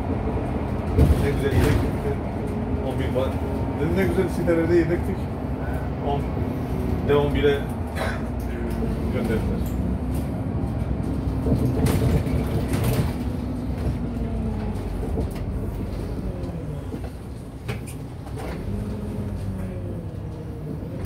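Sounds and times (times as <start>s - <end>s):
bus cabin rattles: 0.0s - 21.0s
bus engine revving: 0.0s - 21.0s.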